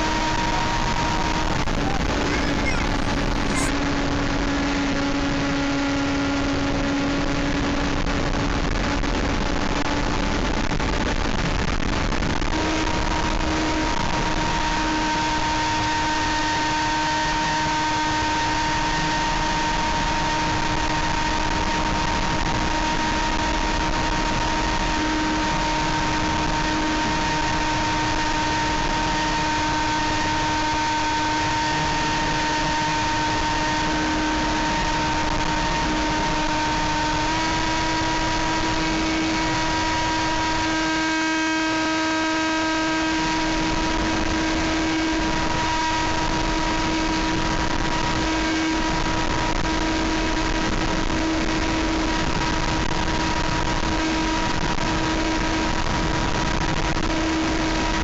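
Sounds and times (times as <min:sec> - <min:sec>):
wind rush: 0:00.0 - 0:05.0
electric motor whine: 0:00.0 - 0:06.1, 0:12.5 - 0:55.8.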